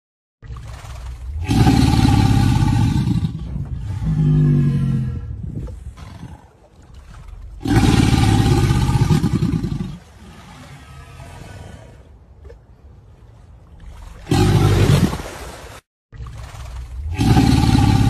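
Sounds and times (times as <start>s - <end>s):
crocodilian growling: 0.4s - 6.5s, 7.6s - 12.1s, 16.5s - 18.0s.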